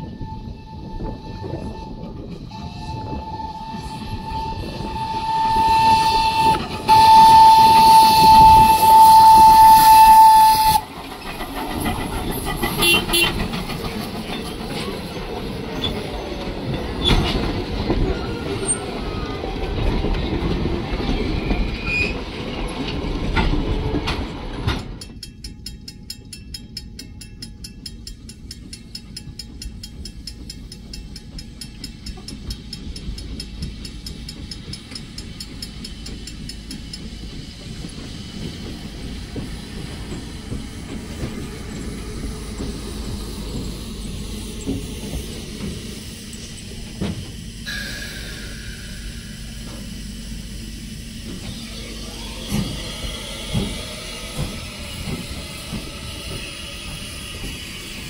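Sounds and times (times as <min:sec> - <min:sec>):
steam locomotive whistle: 0:00.0 - 0:10.9, 0:12.8 - 0:13.4
train rumbling past: 0:00.0 - 0:58.0
wheels clattering over rail joints: 0:05.7 - 0:47.5.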